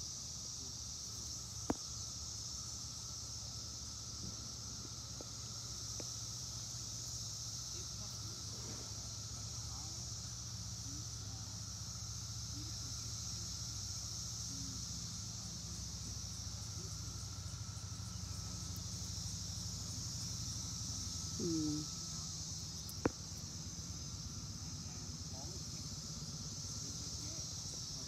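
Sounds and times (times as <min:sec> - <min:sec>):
cicadas droning: 0:00.0 - 0:28.0.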